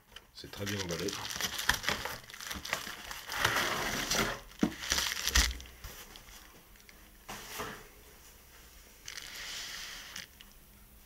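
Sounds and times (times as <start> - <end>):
bubble wrap crinkling: 0.0 - 7.0, 9.0 - 10.5.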